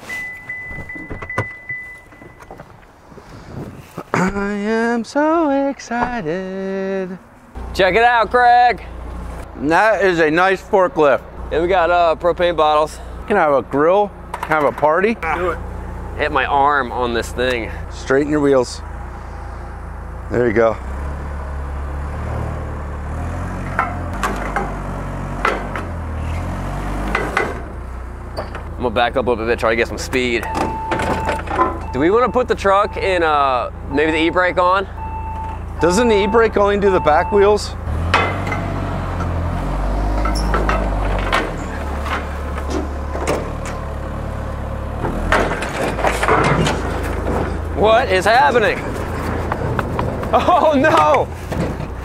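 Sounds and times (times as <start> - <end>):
knocks and clunks on pallets: 0.1 - 2.8, 30.4 - 32.0, 38.0 - 39.4, 40.1 - 43.8, 45.0 - 47.8, 48.9 - 52.0
forklift engine humming: 4.2 - 52.0
wheels knocking on wooden ramps: 48.5 - 52.0.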